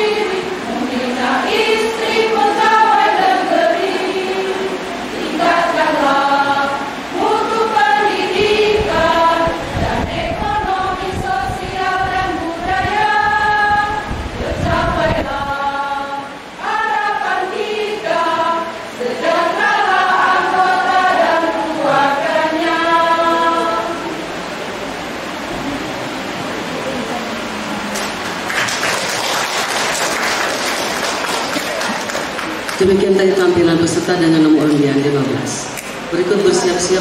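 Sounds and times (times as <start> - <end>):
women's choir singing: 0.0 - 24.7.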